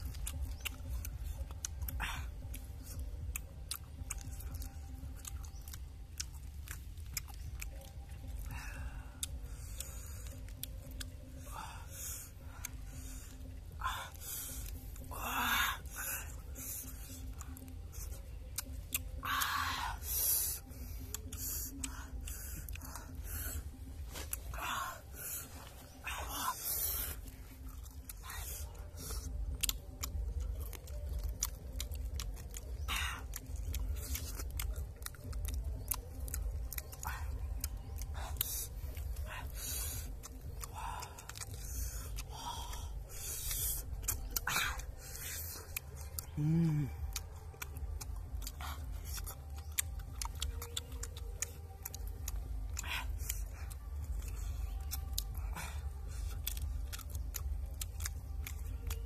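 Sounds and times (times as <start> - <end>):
chewing: 0.0 - 59.0
eating noises: 0.0 - 59.0
crab shells cracking and crunching: 27.1 - 59.0.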